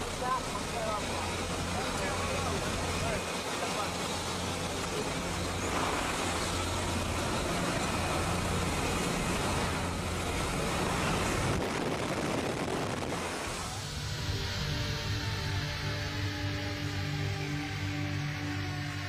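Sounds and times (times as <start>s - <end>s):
plane engine drone: 0.0s - 19.0s
wind rushing through open door: 10.2s - 13.8s.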